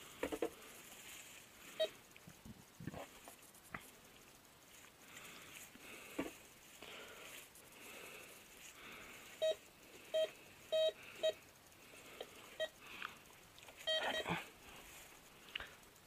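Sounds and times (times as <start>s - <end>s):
metal detector short beeps: 9.4s - 11.4s, 13.8s - 14.3s.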